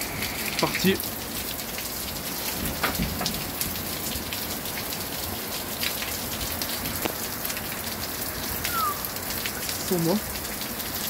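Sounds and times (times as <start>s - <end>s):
heavy rain pouring: 0.0s - 11.0s
large drops dripping from roof: 0.0s - 11.0s.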